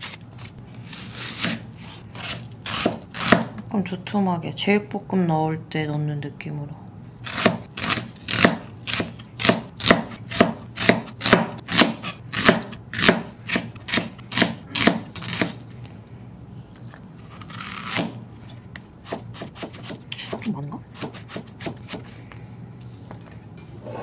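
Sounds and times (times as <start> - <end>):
knife scrape: 0.0 - 3.4, 19.3 - 21.6
knife slicing on cutting board: 0.8 - 3.5.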